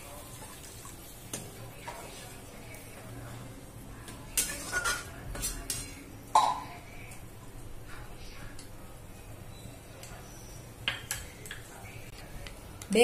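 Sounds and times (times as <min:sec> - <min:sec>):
skimmer spoon scraping a wok: 0:04.3 - 0:06.0.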